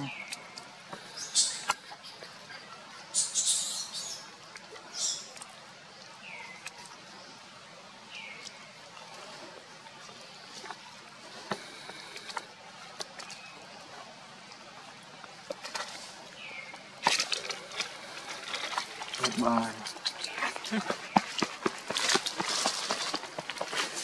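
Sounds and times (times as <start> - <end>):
crackling rustle: 8.2 - 24.0.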